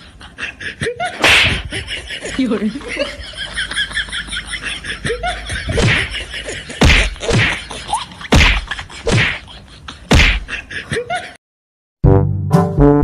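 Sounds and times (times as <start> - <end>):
punch and slap hits: 1.2 - 1.7, 5.7 - 6.1, 6.8 - 7.6, 8.3 - 9.4, 10.1 - 10.5.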